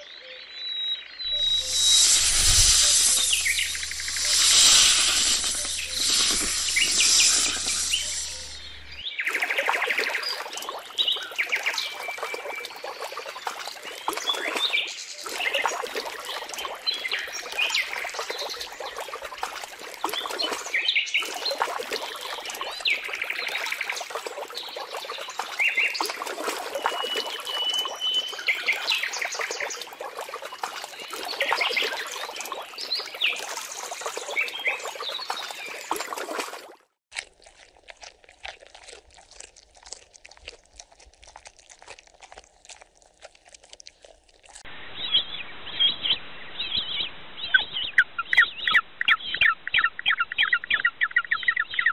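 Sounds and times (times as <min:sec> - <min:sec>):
high chirping calls: 0:01.2 - 0:09.1
crocodiles splashing in water: 0:01.3 - 0:44.6.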